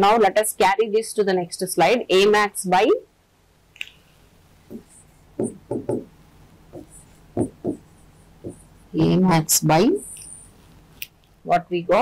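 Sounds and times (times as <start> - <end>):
pen tapping on display board: 4.7 - 6.1, 6.7 - 7.8.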